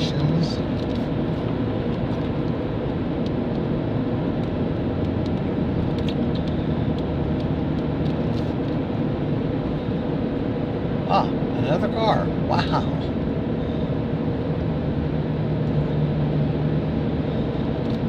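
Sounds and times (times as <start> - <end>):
vehicle engine and tyre noise: 0.0 - 18.0.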